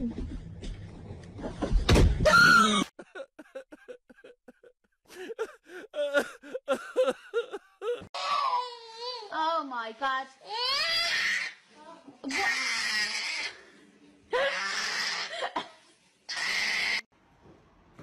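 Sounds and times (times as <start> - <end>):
toddler whimpering cries: 8.2 - 9.3.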